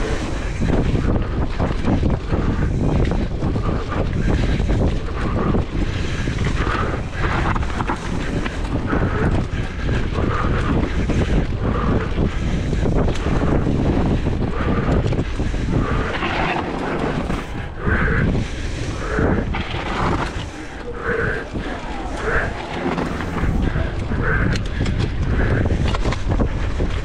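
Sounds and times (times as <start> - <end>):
bike knocking and rattling: 0.0 - 18.6, 21.4 - 27.0
wind buffeting microphone: 0.0 - 27.0
tyres rumbling on dirt: 4.2 - 11.4, 14.9 - 27.0.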